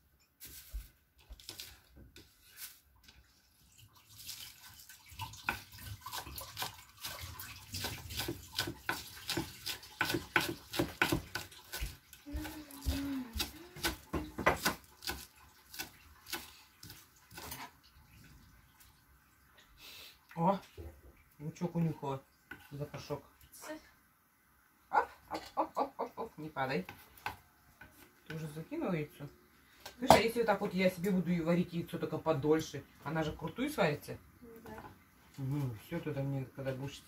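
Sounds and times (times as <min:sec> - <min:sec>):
steady water sound: 0:02.2 - 0:25.4
knife chopping on wooden board: 0:07.8 - 0:17.6.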